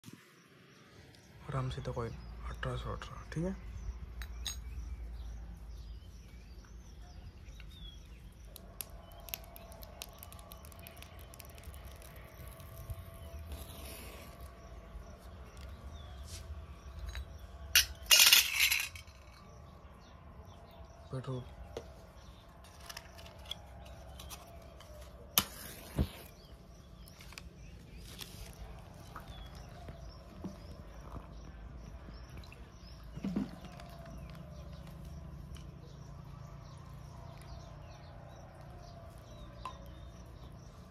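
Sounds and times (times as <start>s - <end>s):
birds chirping: 0.0s - 40.9s
match striking and flaring: 25.4s - 26.4s.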